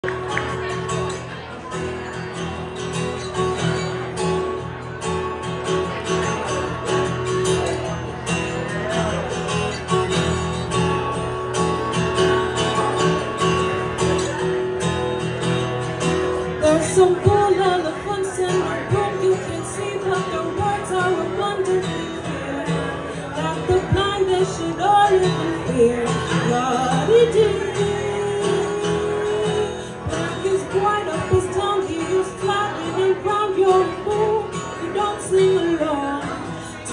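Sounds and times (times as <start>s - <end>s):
acoustic guitar playing: 0.0s - 36.9s
woman singing into microphone: 16.6s - 22.8s, 23.4s - 36.9s.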